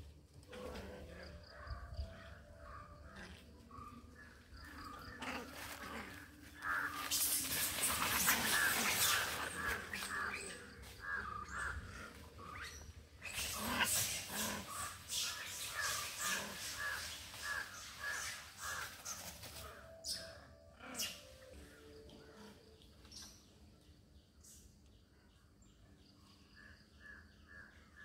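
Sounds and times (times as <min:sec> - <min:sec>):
animal calls: 0:00.5 - 0:22.7.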